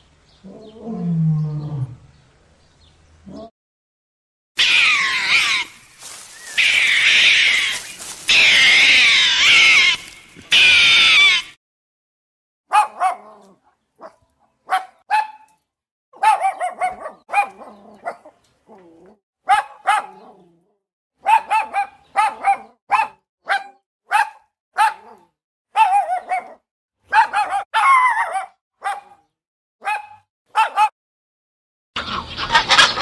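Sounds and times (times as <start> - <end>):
puppies yapping: 4.6 - 11.5, 16.2 - 18.8, 21.2 - 25.2, 25.8 - 29.1.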